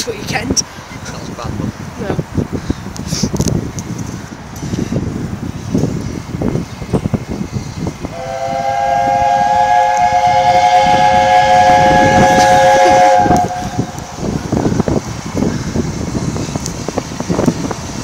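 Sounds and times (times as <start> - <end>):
wind buffeting microphone: 0.0 - 18.0
steam locomotive chime whistle: 8.1 - 14.2.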